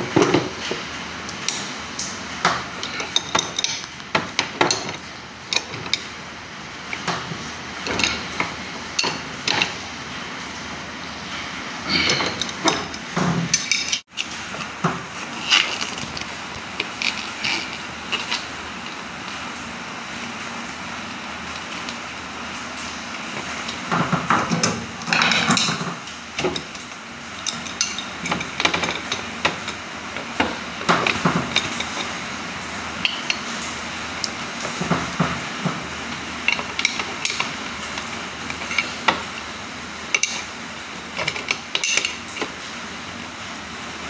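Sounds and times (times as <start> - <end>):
wrenches clinking and scraping: 2.5 - 6.1, 6.9 - 9.8, 11.9 - 19.0, 22.8 - 42.6.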